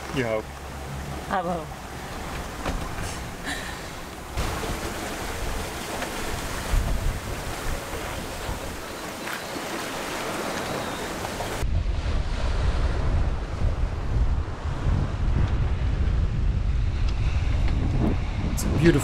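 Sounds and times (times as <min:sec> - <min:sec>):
ocean waves breaking: 0:00.0 - 0:19.0
wind blowing across microphone: 0:02.2 - 0:19.0.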